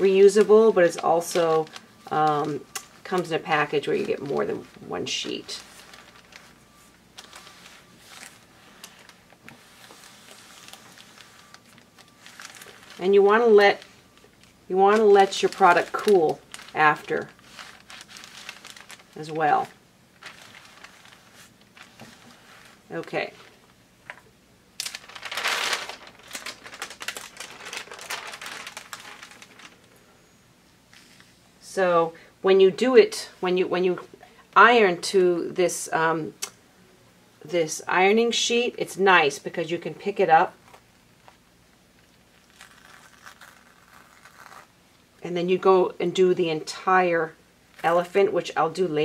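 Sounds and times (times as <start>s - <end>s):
release paper crinkling and rustling: 0.0s - 30.1s, 40.6s - 45.2s.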